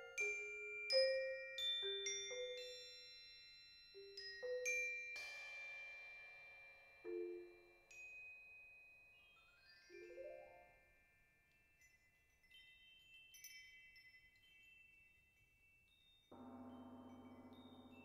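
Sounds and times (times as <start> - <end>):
bell-like mallet percussion notes: 0.0 - 18.0
low percussion roll: 16.4 - 18.0.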